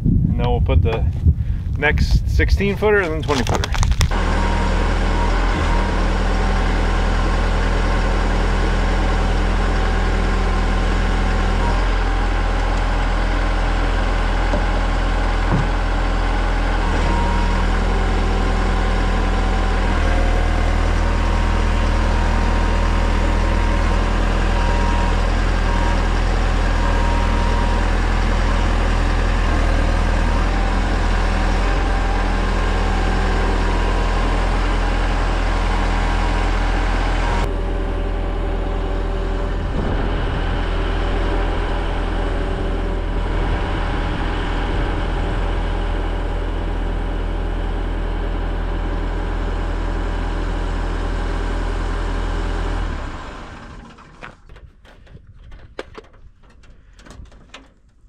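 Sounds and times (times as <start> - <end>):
construction lift engine running: 2.7 - 55.2.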